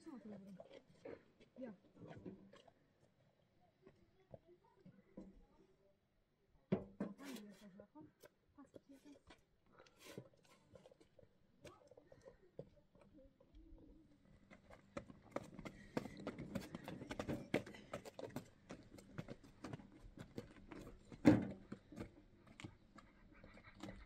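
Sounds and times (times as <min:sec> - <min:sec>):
footsteps on stony dirt: 0:14.3 - 0:24.0.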